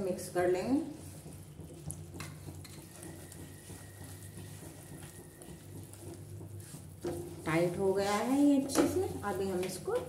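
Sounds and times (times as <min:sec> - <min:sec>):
syrup bubbling: 0:00.0 - 0:10.0
spatula scraping a frying pan: 0:01.0 - 0:10.0.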